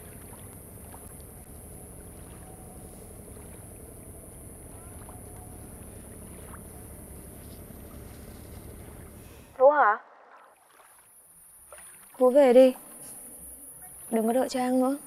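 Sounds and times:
low background rumble: 0.0 - 9.6.

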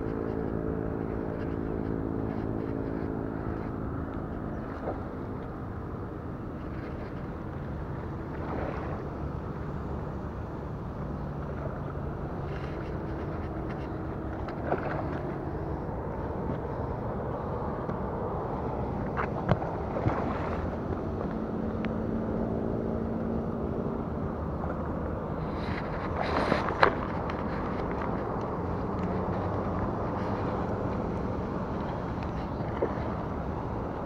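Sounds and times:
low outdoor rumble: 0.0 - 34.0.

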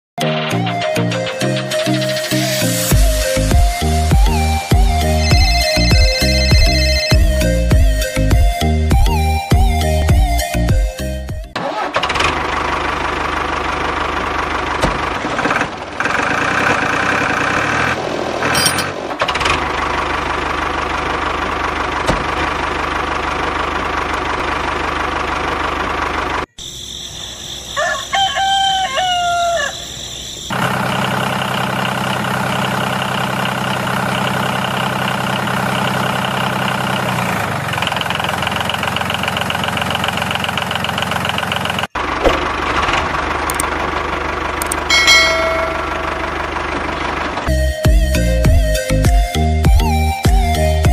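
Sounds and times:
rooster crowing: 27.4 - 30.2.

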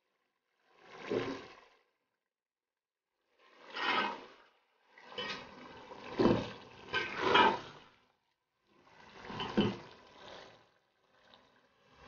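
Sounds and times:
food bubbling and sizzling in pot: 3.2 - 12.0.

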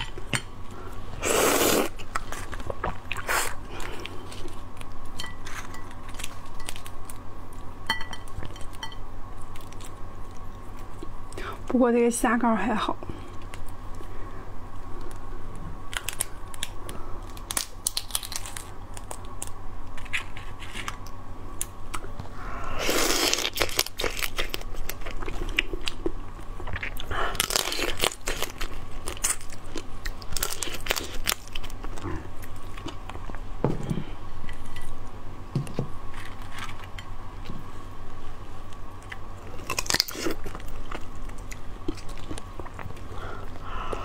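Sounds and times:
crunching and chewing: 1.6 - 11.4, 13.3 - 33.4, 36.0 - 37.7, 38.6 - 44.0
shells cracking and tearing: 15.9 - 21.1.

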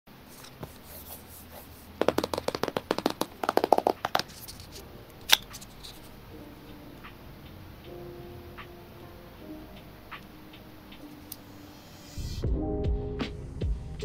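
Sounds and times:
packaging clicks and taps: 2.0 - 6.0.

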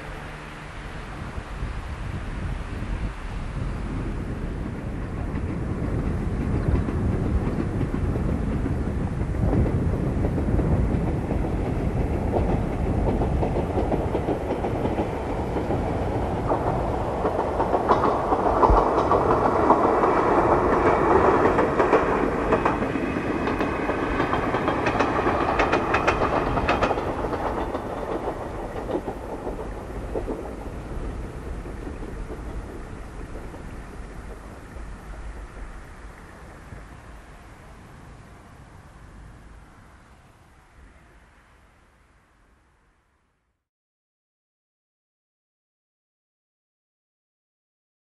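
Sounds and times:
electric train whine: 0.0 - 43.2
train wheel clicks over rail joints: 12.3 - 36.6.

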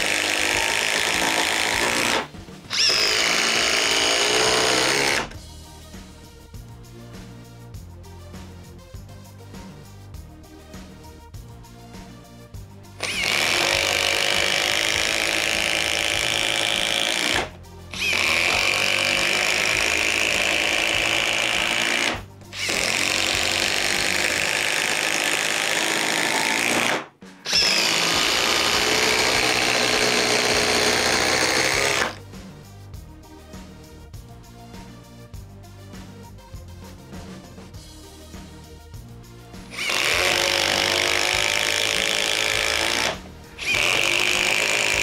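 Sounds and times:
impact driver hammering: 0.0 - 5.4, 13.0 - 32.2, 39.7 - 45.0
quiet background music: 0.0 - 45.0.

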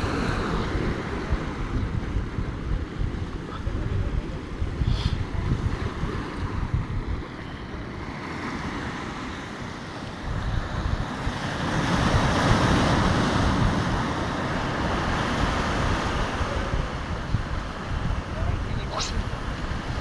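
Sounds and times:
wind buffeting microphone: 0.0 - 20.0
sea waves washing against rocks: 7.8 - 20.0.

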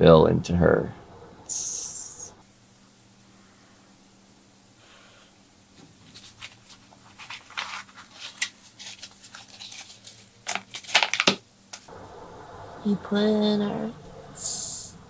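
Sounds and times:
paper banknote crinkling: 6.0 - 11.9.

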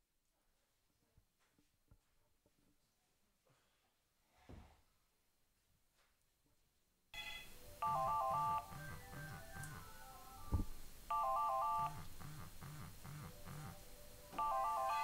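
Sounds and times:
mobile phone ringtone: 7.2 - 15.0.

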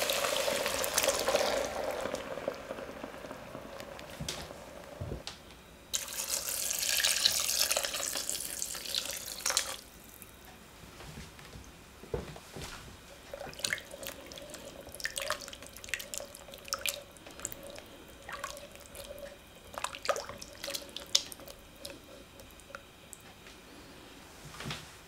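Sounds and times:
faint steady hum: 0.0 - 25.0
liquid sloshing and dripping: 13.3 - 23.2.

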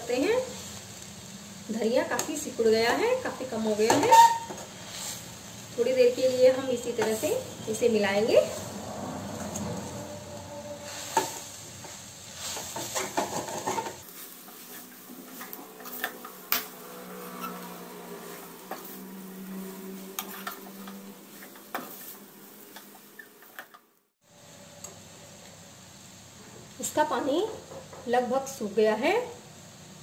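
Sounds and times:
faint sizzle: 0.0 - 30.0
metal spatula scraping a pan: 3.2 - 5.4, 6.0 - 23.8.

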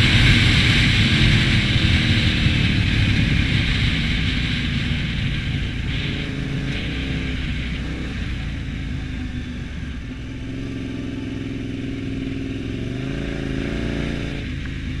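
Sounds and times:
motorcycle engine running: 0.0 - 15.0.

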